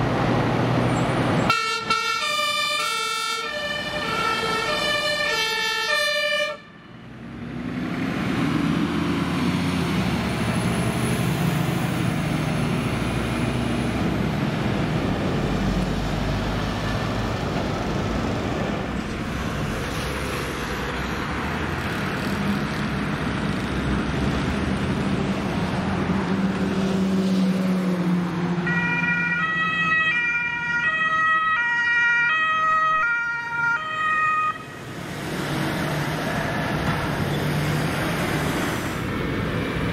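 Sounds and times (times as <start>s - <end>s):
road traffic: 0.0s - 39.9s
two-tone ambulance siren: 1.5s - 6.9s, 28.6s - 34.9s
heavy truck driving past: 7.0s - 29.0s.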